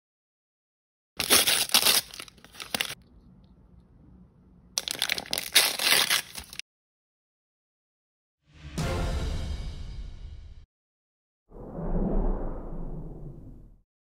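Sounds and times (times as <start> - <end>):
plastic wrappers crinkling and tearing: 1.2 - 3.0, 4.8 - 6.6.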